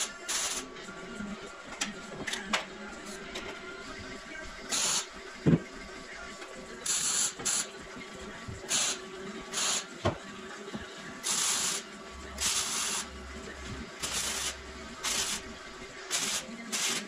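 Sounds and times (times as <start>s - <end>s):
arc welding hissing bursts: 4.7s - 5.1s, 8.7s - 9.9s, 11.2s - 11.8s, 12.4s - 13.1s, 14.0s - 15.5s, 16.1s - 17.0s.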